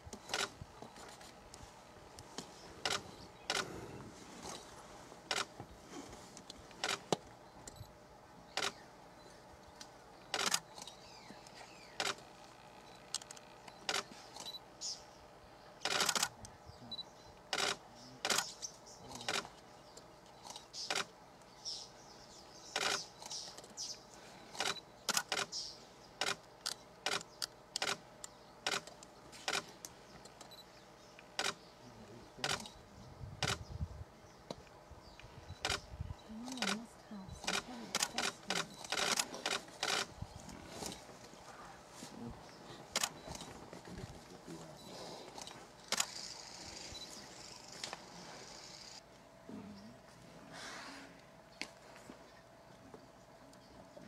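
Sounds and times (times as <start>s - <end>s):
camera shutters clicking: 15.8s - 16.4s, 17.5s - 18.5s, 45.4s - 46.3s.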